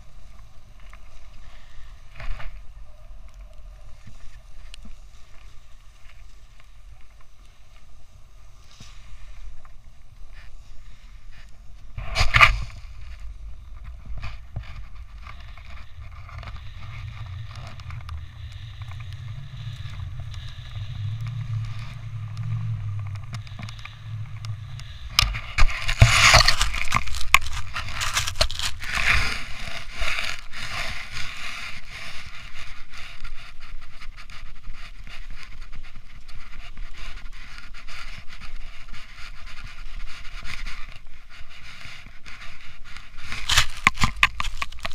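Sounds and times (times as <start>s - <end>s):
snowboard scraping through snow: 0.0s - 44.9s
wind on microphone: 9.1s - 44.9s.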